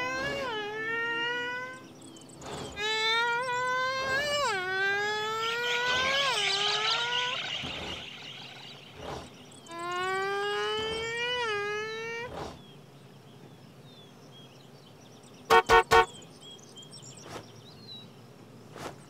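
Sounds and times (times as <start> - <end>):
faint high insect-like buzz: 0.0 - 19.0
long wailing cries: 2.8 - 7.5.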